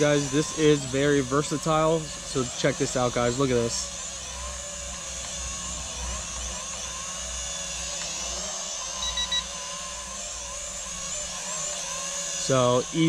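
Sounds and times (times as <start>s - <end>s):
drone propellers whining: 0.0s - 13.0s
short beeps: 9.0s - 9.4s.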